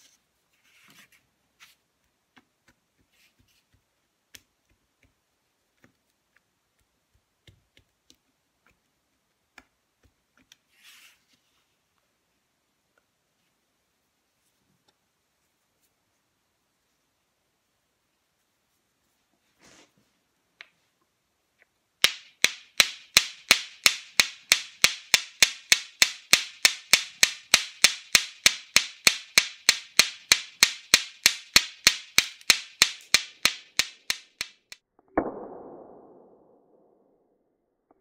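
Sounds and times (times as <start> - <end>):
flint striking stone clicks: 22.0 - 34.8.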